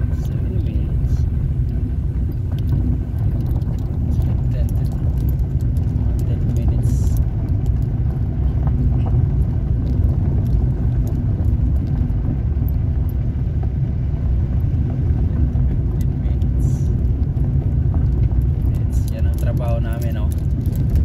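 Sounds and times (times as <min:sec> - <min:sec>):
car rumbling on gravel: 0:00.0 - 0:21.0.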